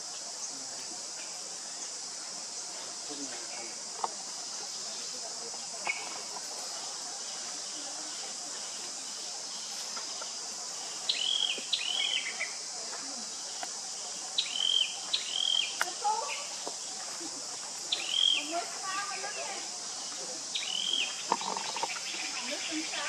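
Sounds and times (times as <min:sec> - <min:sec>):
high-pitched insect drone: 0:00.0 - 0:23.0
high chirping calls: 0:11.0 - 0:12.7, 0:14.4 - 0:16.7, 0:17.8 - 0:23.0.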